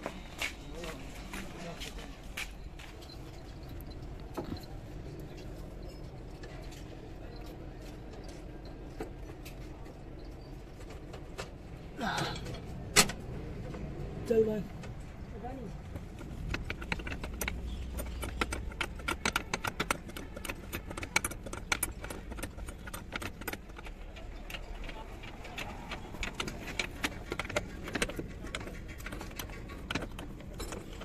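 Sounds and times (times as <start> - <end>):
metal parts and wrench clinking: 15.7 - 31.0.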